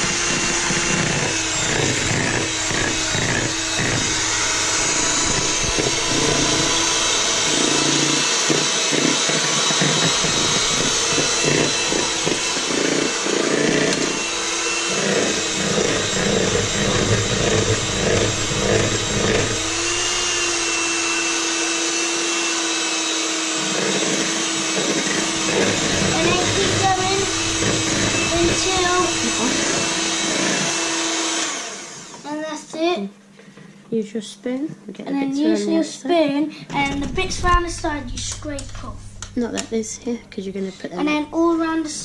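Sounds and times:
electric hand mixer whirring: 0.0 - 32.4.

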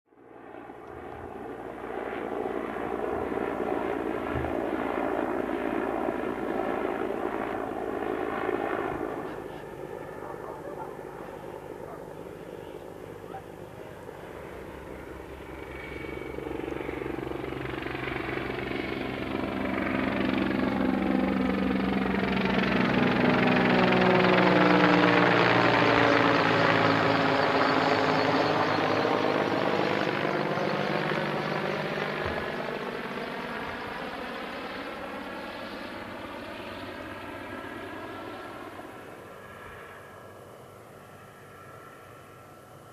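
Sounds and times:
helicopter flying overhead: 0.1 - 42.9.

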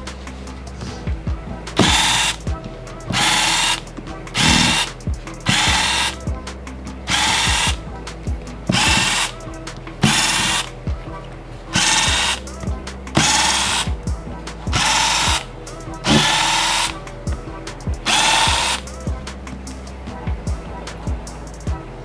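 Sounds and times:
electric screwdriver whirring: 1.8 - 2.4, 3.1 - 3.8, 4.4 - 4.9, 5.5 - 6.2, 7.1 - 7.8, 8.7 - 9.4, 10.0 - 10.7, 11.8 - 12.4, 13.2 - 13.9, 14.8 - 15.4, 16.1 - 17.0, 18.1 - 18.9.

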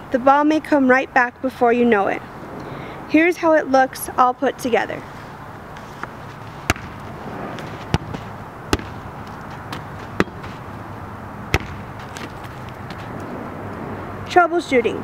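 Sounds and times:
outdoor background noise: 0.0 - 15.0
volleyball smacks on hands: 6.6 - 7.0, 7.8 - 10.6, 11.5 - 13.1.

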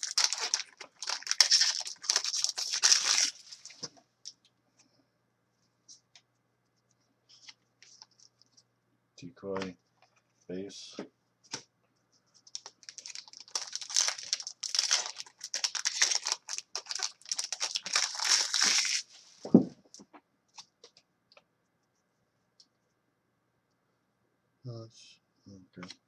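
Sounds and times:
foil wrapper crinkling and tearing: 0.0 - 3.8, 12.5 - 19.1
thump: 19.5 - 19.8.

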